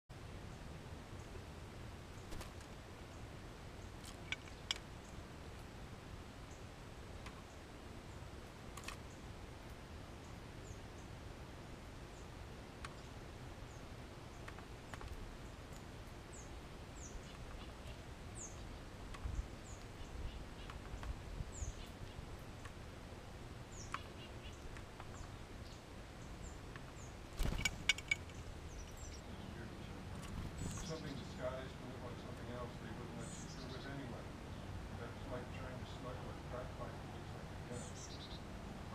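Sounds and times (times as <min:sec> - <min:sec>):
birds chirping: 0:00.2 - 0:38.9
bird pecking on wooden feeder: 0:26.7 - 0:28.4.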